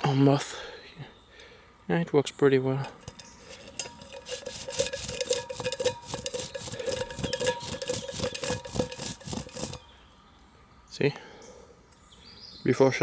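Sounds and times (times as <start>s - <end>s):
steady metallic ring: 2.8s - 10.0s
steel pot being scrubbed: 2.9s - 9.8s.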